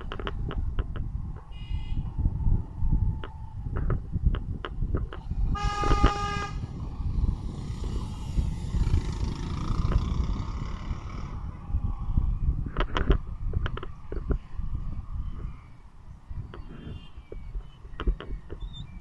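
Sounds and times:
vehicle road rumble: 0:00.0 - 0:19.0
vehicle horn: 0:05.5 - 0:06.7.

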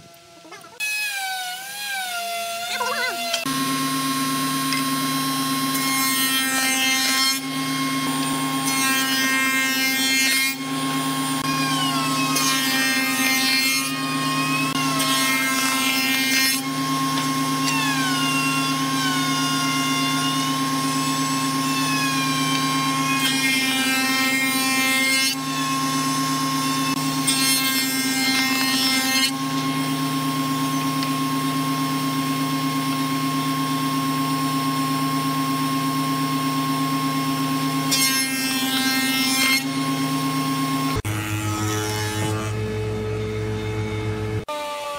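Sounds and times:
cutter head milling wood: 0:00.8 - 0:31.9.

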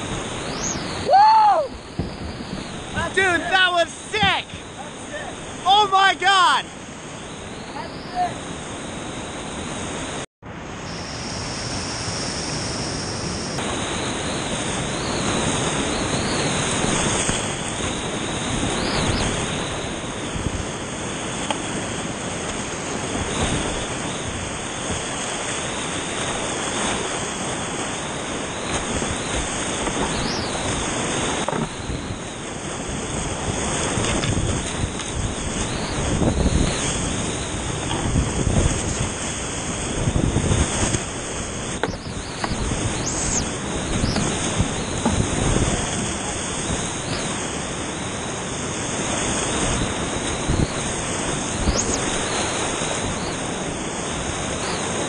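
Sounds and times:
wind on microphone: 0:00.0 - 0:05.8, 0:06.7 - 0:55.0
whitewater rapids rushing: 0:02.8 - 0:06.7.

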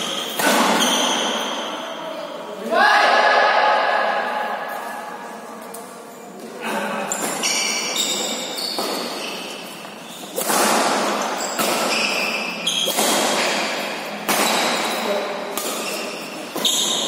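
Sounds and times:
racket hitting shuttlecock: 0:00.1 - 0:01.4, 0:07.2 - 0:09.5, 0:10.3 - 0:17.0
shoes squeaking on court: 0:07.0 - 0:10.4, 0:11.0 - 0:15.0, 0:15.6 - 0:17.0.

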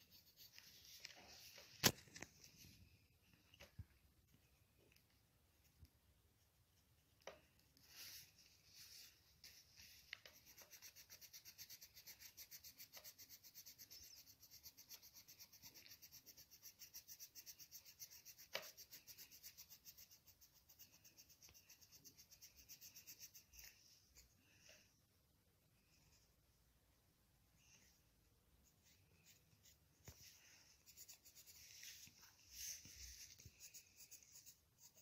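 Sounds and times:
pencil scribbling on paper: 0:00.0 - 0:01.7, 0:08.0 - 0:24.3, 0:28.7 - 0:35.0.

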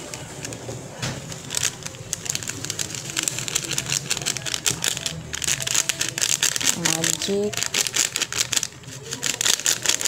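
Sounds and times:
seasoning sachet crinkling: 0:00.0 - 0:10.0.

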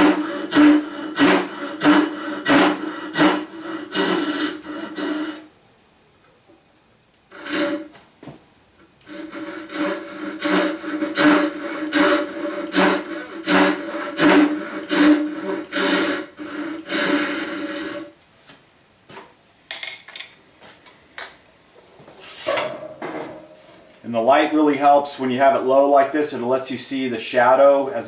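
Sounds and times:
saw rasping strokes: 0:00.0 - 0:05.5, 0:07.3 - 0:07.9, 0:09.0 - 0:18.1.

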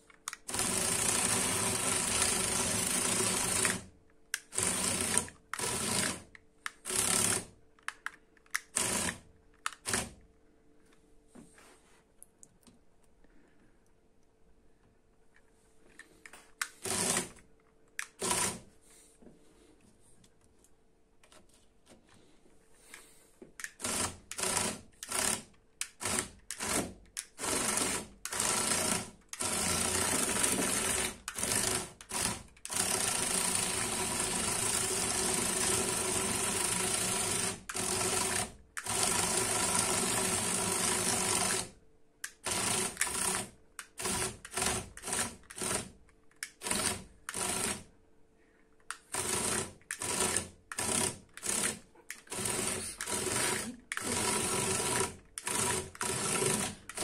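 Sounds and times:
toy tank motors whirring: 0:00.3 - 0:10.2, 0:23.6 - 0:47.9, 0:48.9 - 0:57.0.

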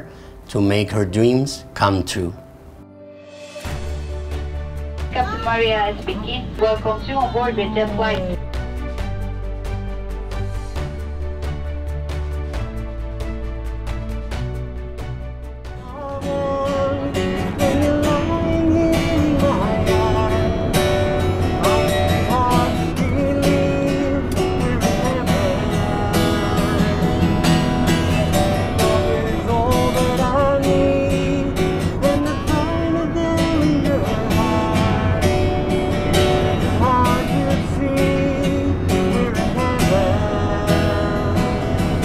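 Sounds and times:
acoustic guitar strumming: 0:03.4 - 0:42.0
person singing: 0:15.8 - 0:27.2, 0:28.2 - 0:35.7, 0:36.5 - 0:42.0.

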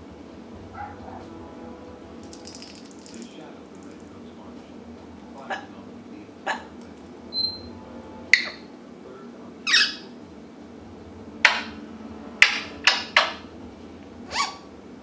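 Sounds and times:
parrot sharp calls: 0:09.7 - 0:10.1, 0:14.3 - 0:14.7.

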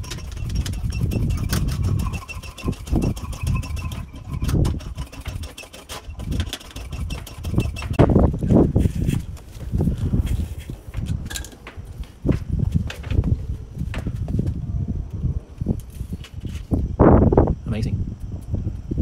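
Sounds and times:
foot pump strokes: 0:00.0 - 0:14.2.

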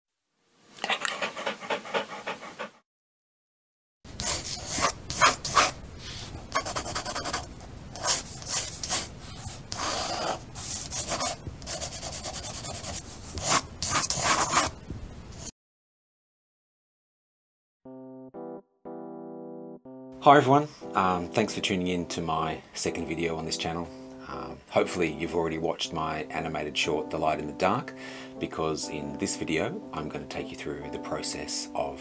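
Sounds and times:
dog panting: 0:00.8 - 0:02.8
pencil scribbling on paper: 0:04.2 - 0:05.8, 0:06.5 - 0:14.8.

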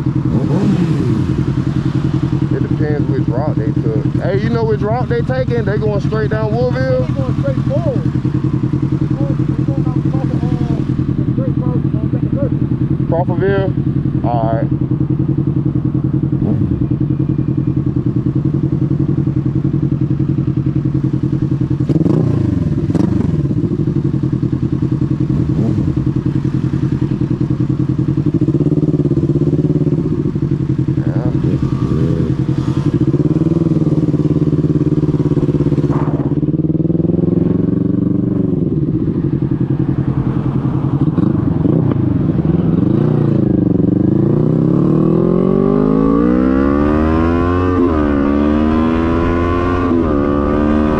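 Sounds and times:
motorcycle engine idling and revving: 0:00.0 - 0:50.9
passing traffic: 0:00.0 - 0:50.9.

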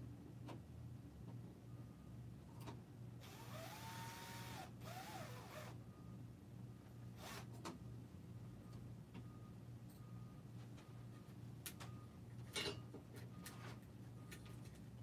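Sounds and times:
cordless drill motor whining: 0:03.2 - 0:05.8.

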